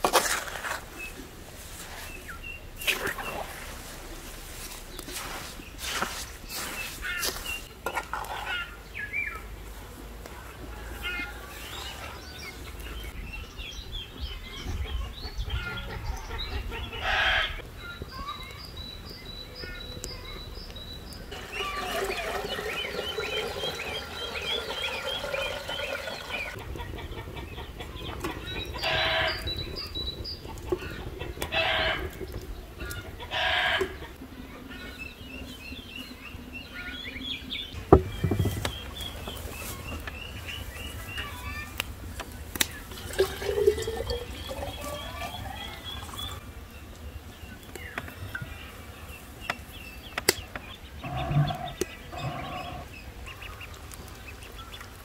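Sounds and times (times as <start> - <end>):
chickens clucking: 2.8 - 8.8, 14.6 - 17.6, 21.3 - 46.5, 47.7 - 55.0.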